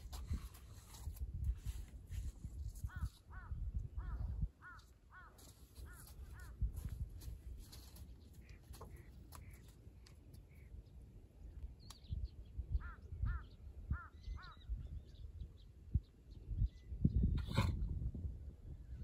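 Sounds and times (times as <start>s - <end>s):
crow cawing: 3.0s - 6.5s.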